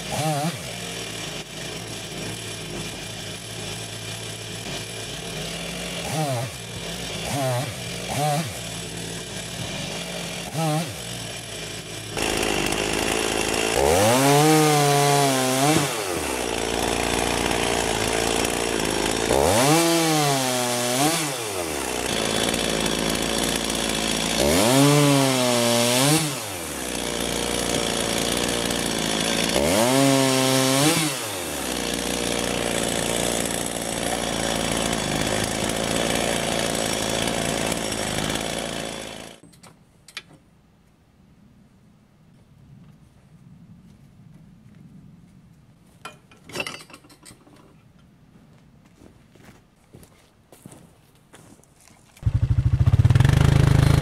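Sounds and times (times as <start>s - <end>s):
chainsaw cutting logs: 0.0s - 40.4s, 51.4s - 54.0s.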